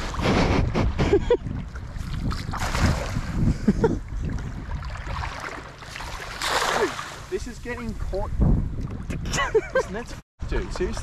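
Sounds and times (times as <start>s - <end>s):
wind buffeting microphone: 0.0s - 5.8s, 6.8s - 11.0s
creek water sloshing and splashing: 1.4s - 8.1s.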